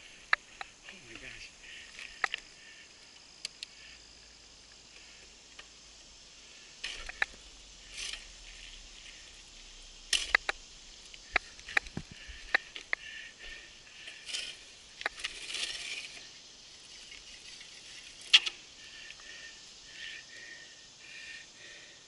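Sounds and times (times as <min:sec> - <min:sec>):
bike clicks and rattles: 0:00.0 - 0:03.8, 0:06.8 - 0:09.4, 0:10.0 - 0:19.4
faint steady hiss: 0:00.0 - 0:22.0.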